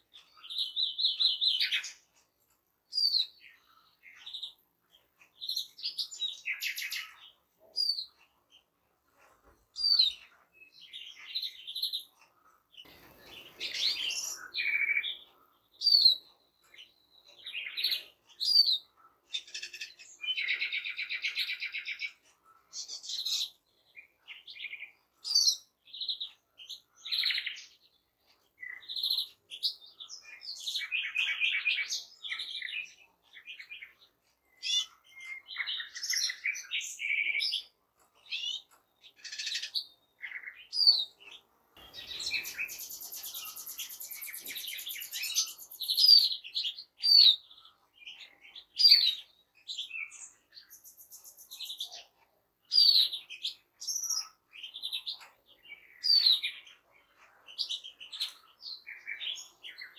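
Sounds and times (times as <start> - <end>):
finches singing: 12.8 - 52.1
harsh buzzing bird calls: 41.8 - 45.8.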